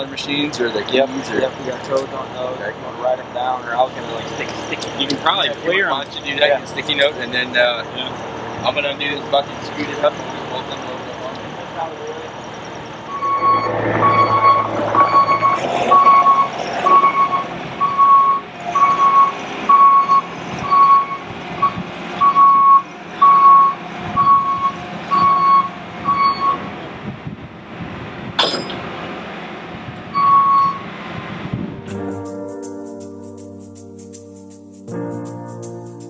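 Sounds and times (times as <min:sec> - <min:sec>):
loader engine running: 0:00.0 - 0:32.3
backup alarm beeping: 0:13.0 - 0:26.6, 0:30.1 - 0:30.8
sharp metal clank: 0:28.4 - 0:28.9.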